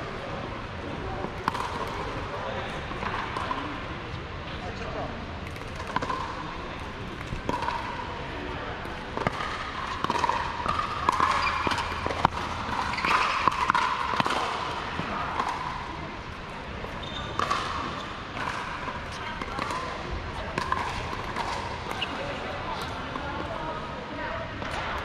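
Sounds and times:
murmur of voices: 0.0s - 25.0s
paddles hitting plastic ball: 1.2s - 2.2s, 5.4s - 8.0s, 8.8s - 15.9s, 17.4s - 22.1s.

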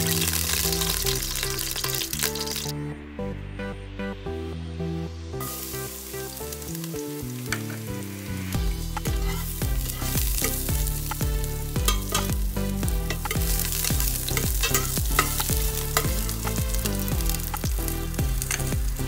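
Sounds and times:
garlic sizzling in oil: 0.0s - 2.7s, 5.4s - 19.0s
background music with beat: 0.0s - 19.0s
metal spoon scraping pot: 8.8s - 10.7s, 14.3s - 16.1s.

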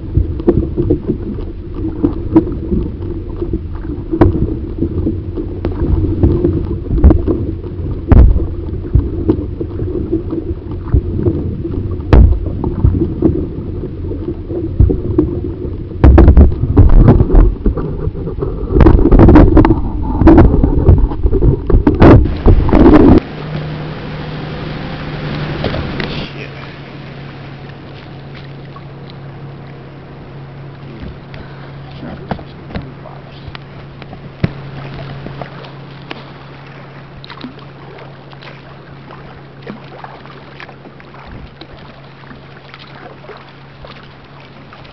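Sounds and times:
wind buffeting microphone: 0.0s - 39.8s
low hum: 0.0s - 44.9s
water splashing: 0.0s - 44.9s
paddle knocks: 8.0s - 10.2s, 12.0s - 13.4s, 16.0s - 18.2s, 24.8s - 26.8s, 30.7s - 41.9s.

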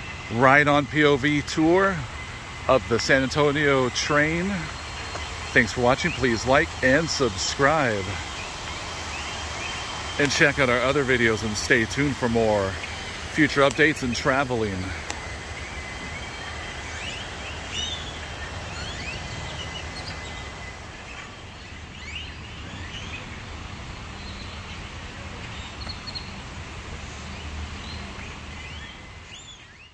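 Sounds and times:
thin steady high tone: 0.0s - 21.3s
bird chirps: 0.0s - 23.4s
low rumble and hiss: 0.0s - 29.9s.

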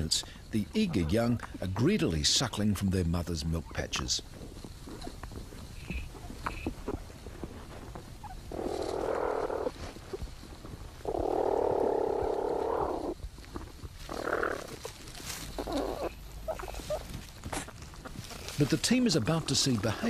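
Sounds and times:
harsh rasping animal sounds: 4.3s - 10.1s, 11.0s - 19.6s.

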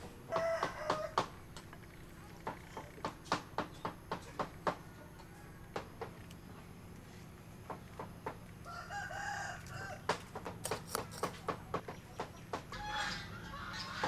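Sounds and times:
rooster crowing: 0.3s - 1.2s, 8.6s - 10.1s, 12.7s - 14.0s.

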